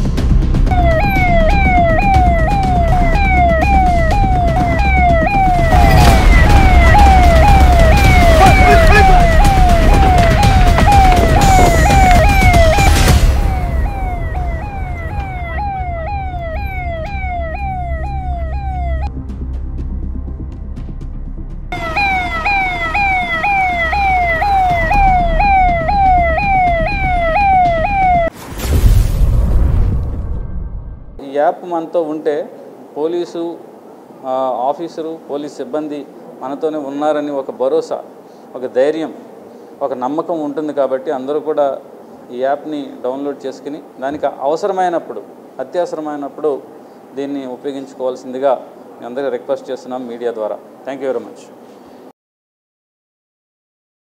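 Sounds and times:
steady low rumble: 0:00.2 - 0:28.3
police siren wailing: 0:00.7 - 0:19.1, 0:21.7 - 0:28.4
deep whoosh and boom: 0:28.3 - 0:31.2.

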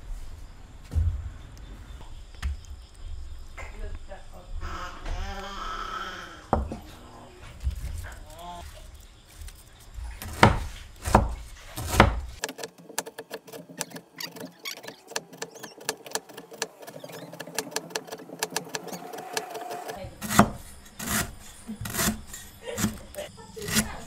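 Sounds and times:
cleaver chopping on wooden block: 0:10.2 - 0:24.0.

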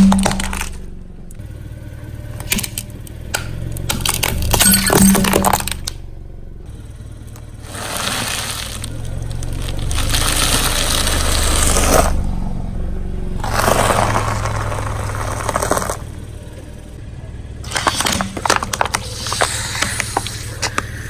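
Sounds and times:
car engine hum: 0:00.0 - 0:21.0
tyre crunching bag of food: 0:07.7 - 0:12.2, 0:13.4 - 0:16.0, 0:17.7 - 0:21.0.

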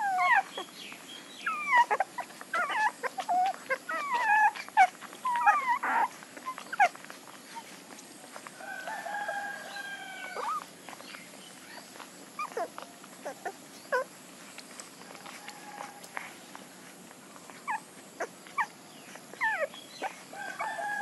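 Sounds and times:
puppies squealing and whimpering: 0:00.0 - 0:07.9, 0:09.3 - 0:21.0
rooster crowing: 0:08.6 - 0:10.6, 0:15.2 - 0:16.2, 0:20.3 - 0:21.0.

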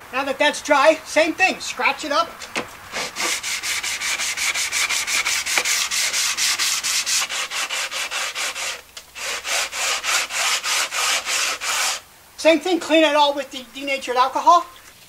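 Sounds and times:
hand sanding strokes: 0:02.9 - 0:12.1.

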